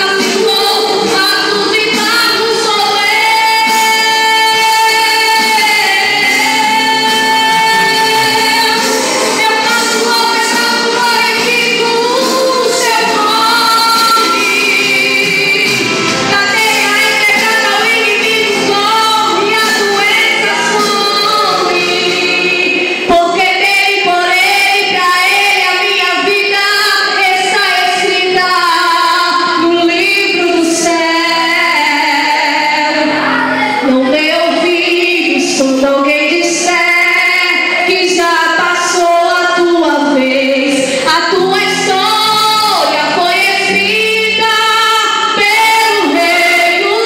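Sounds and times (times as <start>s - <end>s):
instrumental accompaniment: 0.0s - 24.7s
woman singing gospel song: 0.0s - 47.0s.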